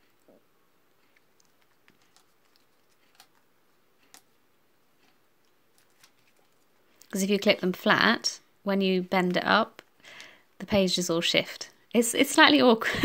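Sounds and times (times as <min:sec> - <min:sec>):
faint clicks of paper and clips: 0:01.0 - 0:04.4, 0:05.0 - 0:07.2.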